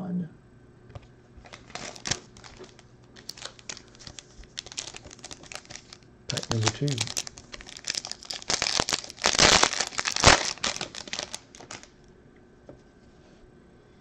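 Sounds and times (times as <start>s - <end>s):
foil wrapper crinkling and tearing: 1.4s - 11.9s.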